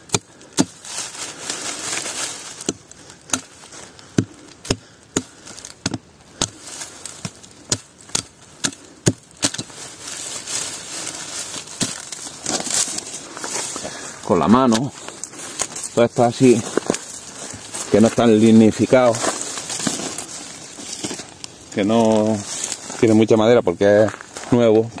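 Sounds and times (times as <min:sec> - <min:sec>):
hatchet chopping wood: 0:00.0 - 0:00.9, 0:02.6 - 0:09.8, 0:11.6 - 0:12.2.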